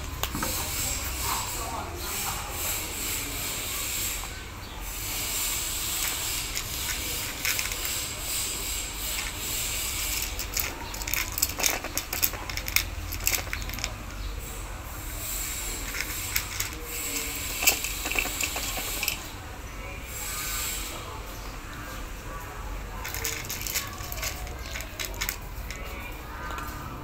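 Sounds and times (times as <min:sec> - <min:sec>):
cat crunching dry kibble: 0:05.8 - 0:08.2, 0:09.0 - 0:14.2, 0:15.7 - 0:19.2, 0:22.9 - 0:26.1.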